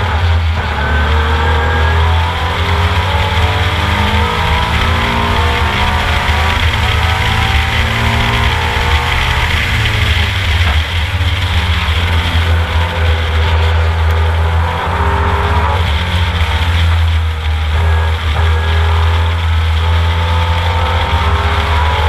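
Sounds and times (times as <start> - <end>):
race car engine running hard: 0.0 - 22.0
wind rushing: 2.2 - 13.6.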